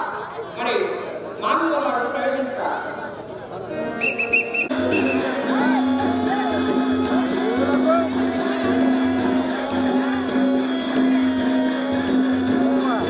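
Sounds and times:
small cymbals struck rhythmically: 4.6 - 13.0
drum beating: 4.7 - 13.0.

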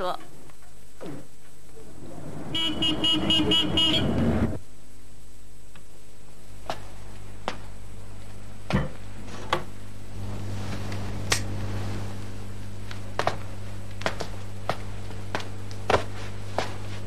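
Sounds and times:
car passing: 1.8 - 4.6
car horn toots: 2.5 - 4.6.

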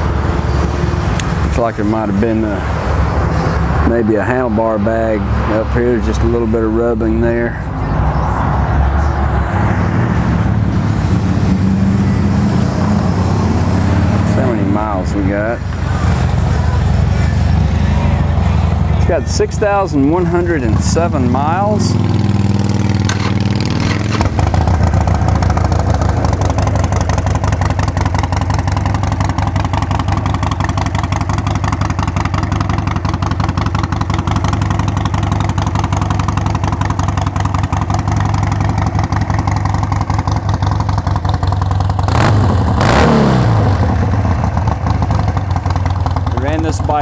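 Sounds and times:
motorcycle engine idling: 11.6 - 42.8, 43.5 - 47.0.

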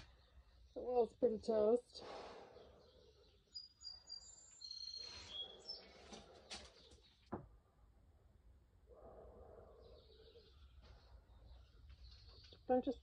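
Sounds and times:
faint bird chirps: 0.0 - 7.2.

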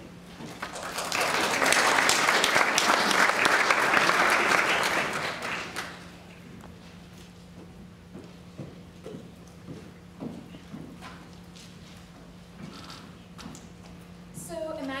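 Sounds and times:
audience applauding: 0.5 - 6.1.

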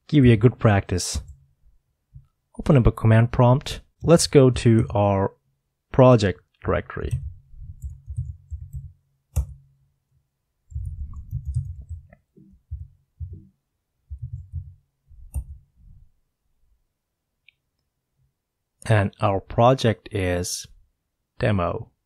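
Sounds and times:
typing on keyboard: 7.1 - 9.6, 10.7 - 13.4.

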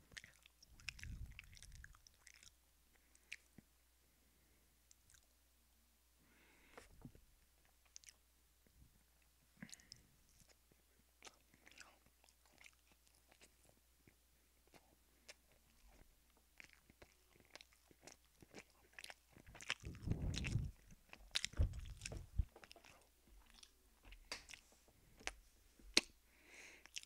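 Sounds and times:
chewing and crunching food: 0.0 - 3.7, 4.9 - 5.4, 6.6 - 8.2, 9.2 - 27.0
wet mouth clicks: 0.1 - 2.6, 19.1 - 23.7
low thuds: 19.8 - 22.6.

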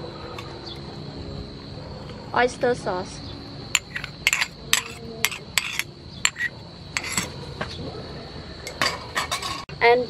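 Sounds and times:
bowl and utensils clinking on pan: 3.8 - 7.3, 8.7 - 9.7.

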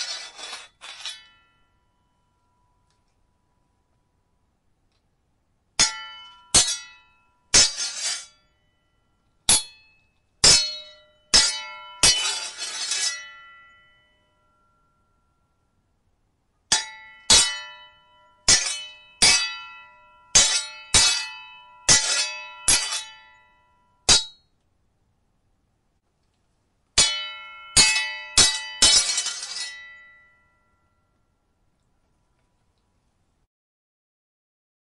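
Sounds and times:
blade scraping along blade: 0.0 - 1.4, 7.6 - 8.3, 12.0 - 13.2, 21.9 - 23.2, 28.8 - 29.8
sword blades clashing: 0.0 - 1.5, 5.8 - 8.4, 9.5 - 13.7, 16.7 - 23.4, 24.1 - 24.4, 27.0 - 30.3.

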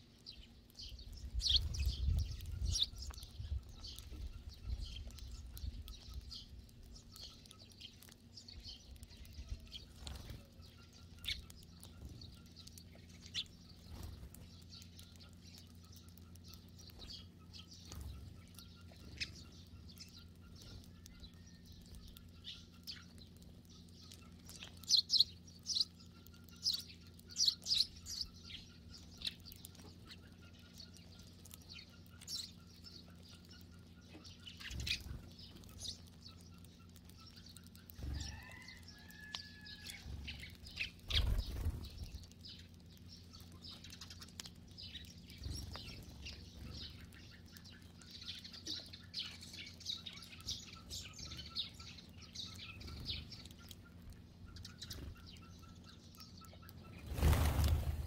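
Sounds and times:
sparrows chirping: 0.0 - 58.0
wing flutters: 39.9 - 42.6, 56.9 - 58.0.

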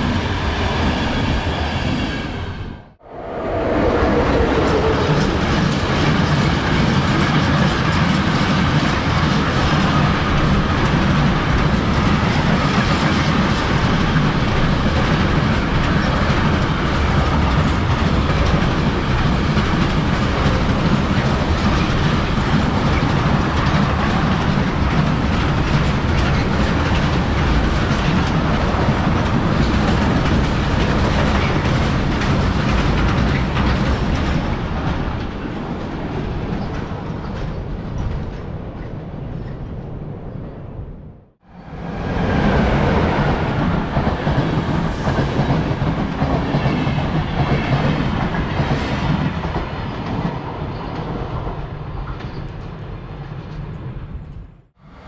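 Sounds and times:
train wheels rolling on rails: 3.3 - 40.6, 41.5 - 55.0.

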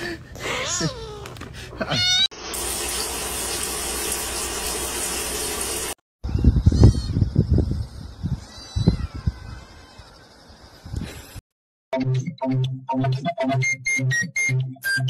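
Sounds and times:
washing machine filling with water: 2.4 - 6.0.

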